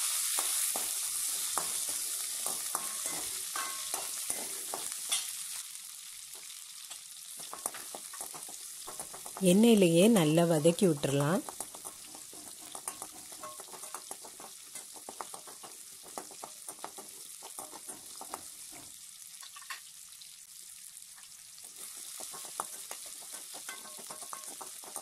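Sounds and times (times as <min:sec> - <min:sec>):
shallots sizzling in oil: 0:00.0 - 0:25.0
metal spoon scraping and clicking: 0:01.6 - 0:05.3, 0:07.4 - 0:09.4, 0:11.4 - 0:18.8, 0:22.2 - 0:25.0.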